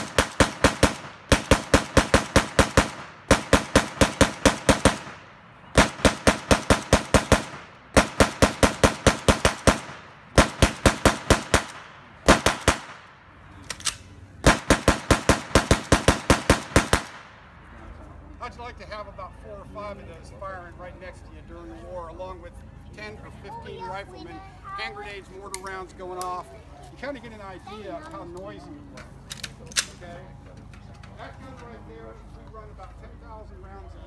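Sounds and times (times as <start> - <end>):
machine gun firing bursts: 0.0 - 5.2, 5.8 - 13.0, 14.4 - 17.2.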